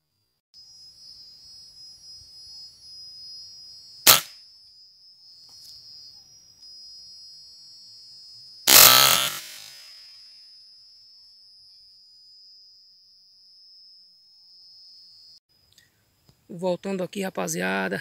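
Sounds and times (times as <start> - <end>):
loud short noise: 4.1 - 4.3, 8.7 - 10.0
air rifle shot: 4.1 - 4.4.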